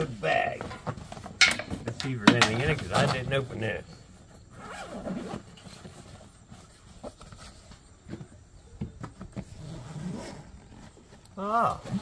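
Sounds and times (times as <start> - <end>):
nylon bag rustling: 4.4 - 8.0
bag unzipping: 4.5 - 5.6, 9.5 - 11.0.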